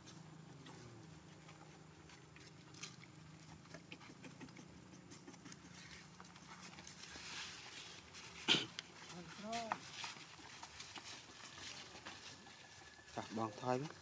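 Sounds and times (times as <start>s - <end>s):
soft rustles: 5.2s - 14.0s.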